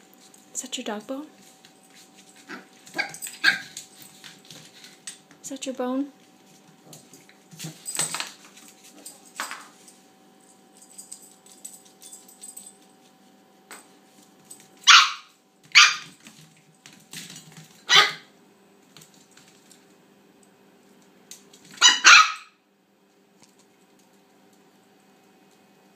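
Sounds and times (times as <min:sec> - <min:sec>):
puppy barking: 0:02.5 - 0:03.8, 0:14.9 - 0:16.1, 0:17.9 - 0:18.3, 0:21.8 - 0:22.6.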